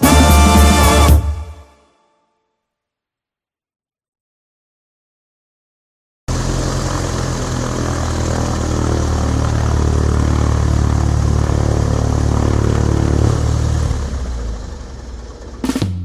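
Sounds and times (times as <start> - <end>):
loud mechanical low drone: 6.3 - 16.0.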